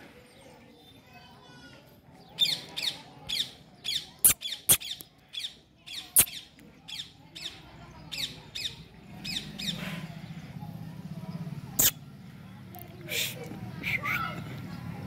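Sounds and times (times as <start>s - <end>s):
animal chirping calls: 11.8s - 12.0s.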